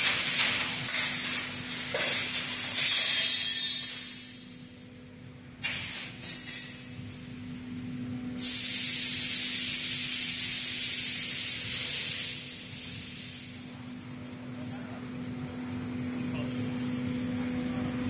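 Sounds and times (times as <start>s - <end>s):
low machine hum: 0.0s - 8.4s, 13.5s - 18.0s
loud pneumatic air hiss: 2.8s - 4.5s, 8.4s - 13.8s.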